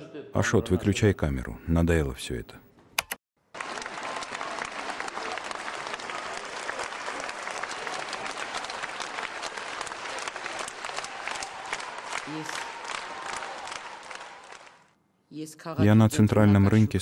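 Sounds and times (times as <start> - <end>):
audience applauding: 3.4 - 14.9.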